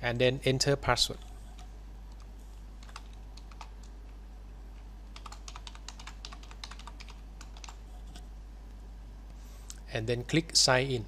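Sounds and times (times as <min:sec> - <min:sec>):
low steady hum: 0:00.0 - 0:11.0
typing on a keyboard: 0:01.6 - 0:03.9, 0:05.1 - 0:07.8.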